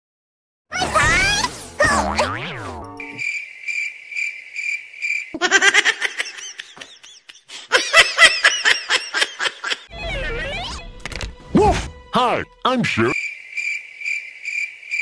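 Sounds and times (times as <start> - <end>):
cartoon giggling: 5.4 - 10.7.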